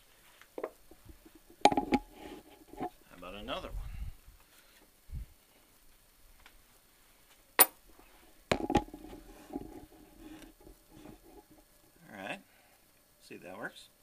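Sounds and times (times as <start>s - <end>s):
faint ringing rattle: 0.8s - 3.2s, 8.5s - 11.9s
metal block clunks: 1.6s - 2.9s.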